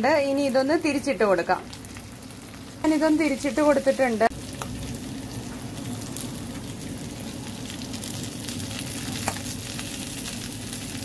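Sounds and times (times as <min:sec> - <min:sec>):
fish sizzling in oil: 0:00.1 - 0:11.0
oil crackling and popping: 0:00.3 - 0:11.0.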